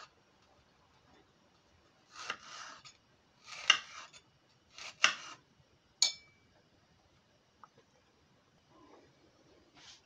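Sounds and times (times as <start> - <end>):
knife slicing apple: 2.0 - 5.4.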